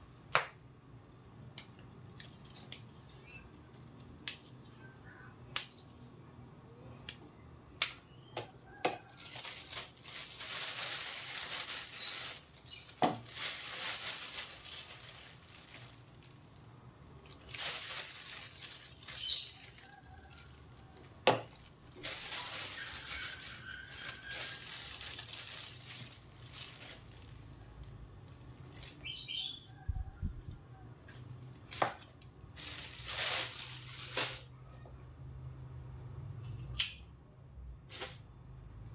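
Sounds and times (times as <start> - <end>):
plastic bag rustling: 8.7 - 27.6, 28.2 - 29.6, 31.5 - 34.5, 37.8 - 38.4
leaves tearing: 9.0 - 16.4, 17.2 - 20.3, 21.5 - 27.4, 31.6 - 34.5.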